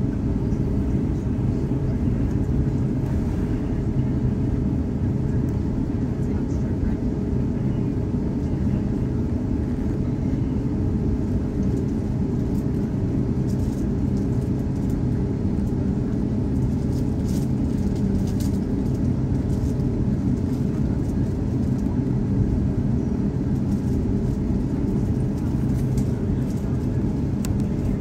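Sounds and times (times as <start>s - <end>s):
jet engines idling in cabin: 0.0s - 28.0s.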